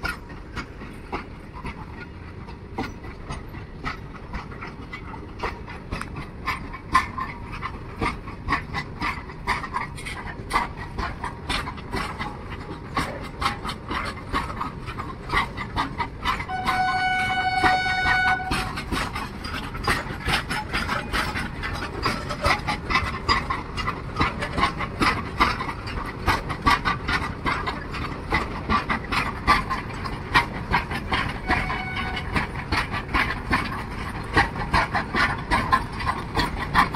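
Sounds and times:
clicking and clanking from rails: 0.0s - 36.9s
freight train wagons rolling past: 0.0s - 36.9s
train horn: 16.4s - 19.0s, 31.4s - 32.5s.

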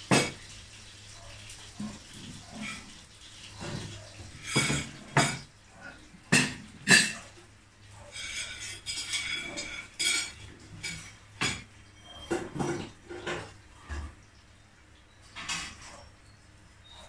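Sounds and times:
cutlery scraping ceramic plates: 3.6s - 5.5s, 6.3s - 7.3s, 8.0s - 13.5s.

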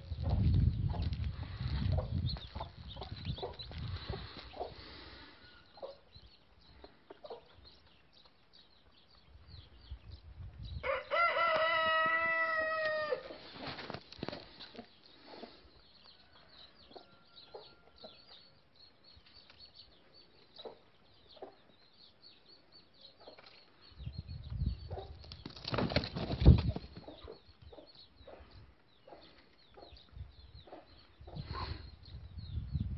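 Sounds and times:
birds scratching on paving: 0.2s - 6.0s, 11.1s - 16.0s
rooster crowing: 10.8s - 13.3s.

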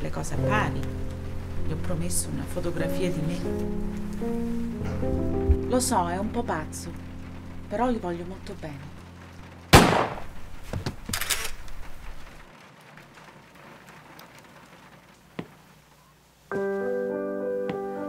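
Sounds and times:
piano music: 0.0s - 10.7s, 16.5s - 18.0s
handgun shot with echo: 9.8s - 10.3s.

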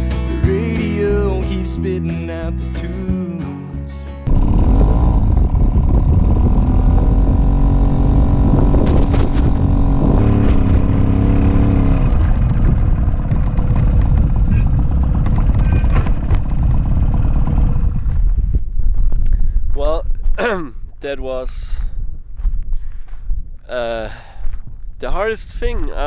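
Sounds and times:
moped engine running under load: 4.3s - 18.6s
sharp knocks from stony track: 8.8s - 9.6s, 12.1s - 16.8s.

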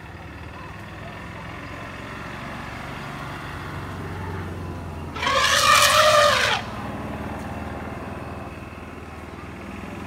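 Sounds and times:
elephant calf trumpeting: 5.1s - 6.8s.

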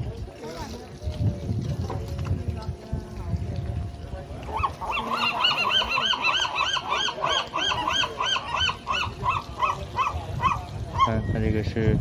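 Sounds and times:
gull yelping call: 4.5s - 11.2s.

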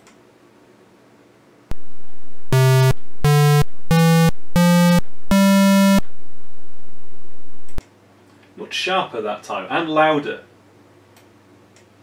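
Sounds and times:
buzzy square-wave synth notes: 1.7s - 7.8s.

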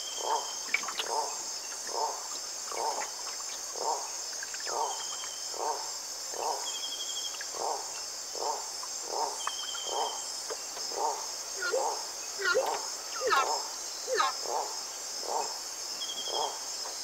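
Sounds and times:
high insect chorus: 0.0s - 17.0s
loud sweeping calls: 10.9s - 15.5s
repeating animal call: 10.9s - 15.5s, 16.2s - 16.6s.

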